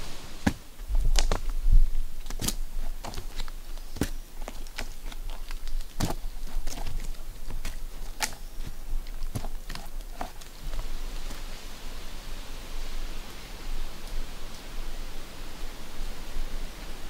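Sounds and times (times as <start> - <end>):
boots and rope scraping bark: 0.0 - 12.2
steady hiss: 0.0 - 17.0.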